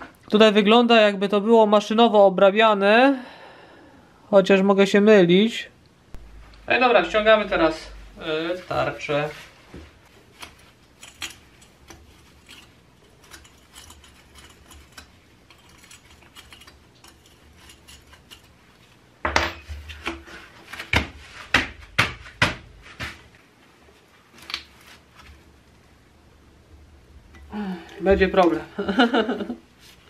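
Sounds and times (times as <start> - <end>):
metal clinks and knocks: 11.0 - 18.6.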